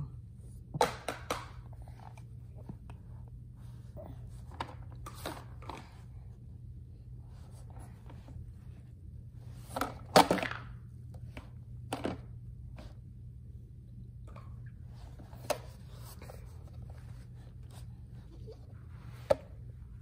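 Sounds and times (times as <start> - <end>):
low hum: 6.0 - 20.0.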